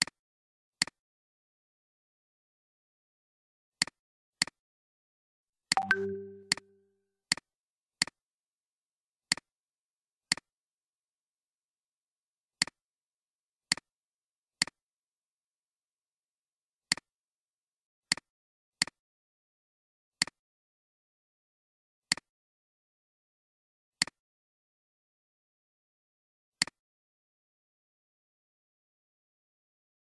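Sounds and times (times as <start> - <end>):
computer mouse button clicks: 5.8 - 6.6
short pitched tone: 5.8 - 6.6.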